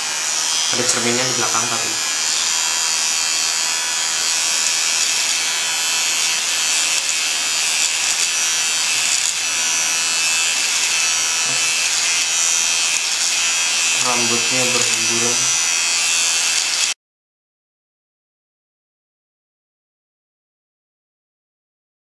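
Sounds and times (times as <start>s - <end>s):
electric shaver buzzing: 0.0s - 17.0s.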